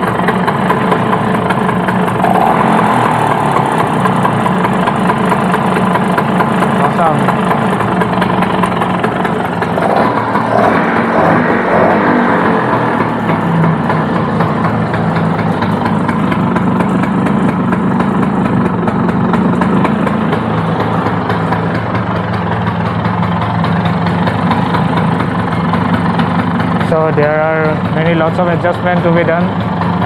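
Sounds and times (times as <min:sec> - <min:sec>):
two-stroke engine idling: 0:00.0 - 0:30.0.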